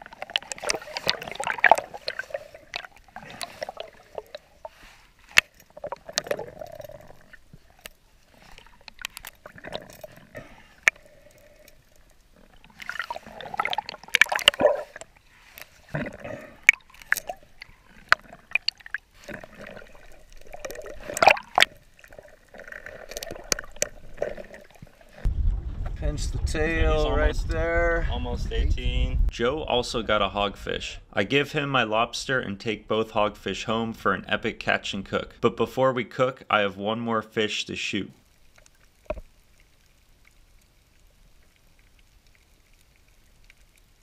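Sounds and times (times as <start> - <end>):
underwater gurgling and bubbling: 0.0 - 26.5.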